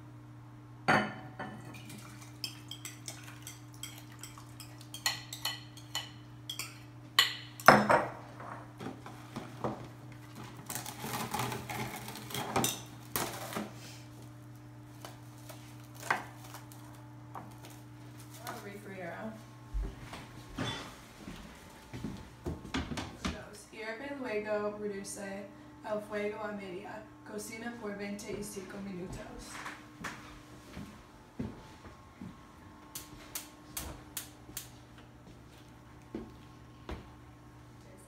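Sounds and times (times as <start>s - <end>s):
spoon clinking glass bowls: 1.4s - 8.0s.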